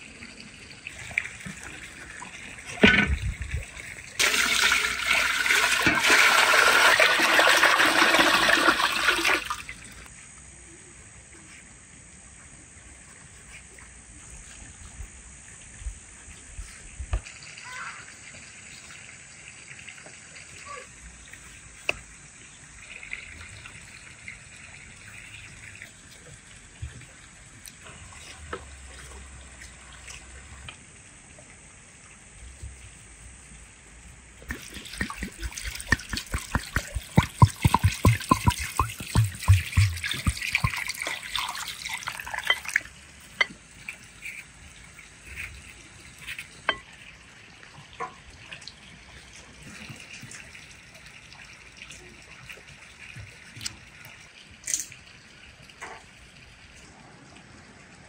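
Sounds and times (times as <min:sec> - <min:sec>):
water sloshing and splashing: 0:00.0 - 0:10.1, 0:34.4 - 0:58.0
water dripping: 0:34.4 - 0:56.9.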